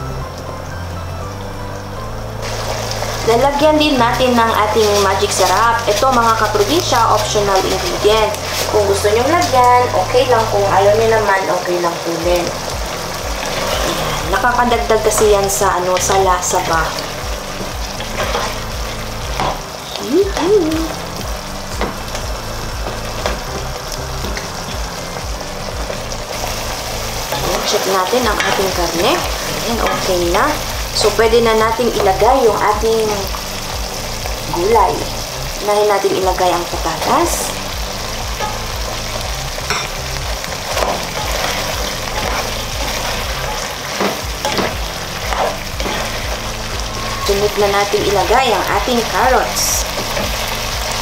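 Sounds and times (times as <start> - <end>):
stew bubbling and sizzling in a pot: 0.0 - 51.0.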